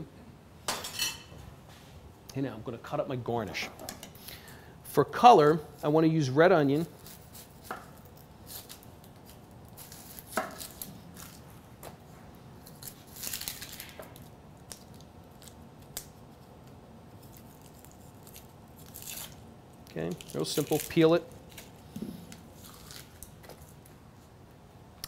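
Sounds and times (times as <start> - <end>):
knife slicing onion: 6.8 - 11.4.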